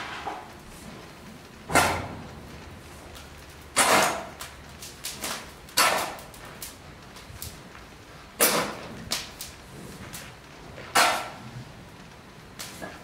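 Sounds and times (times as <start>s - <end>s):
rake scraping charcoal: 0.0s - 1.1s, 2.8s - 6.8s, 8.4s - 11.5s.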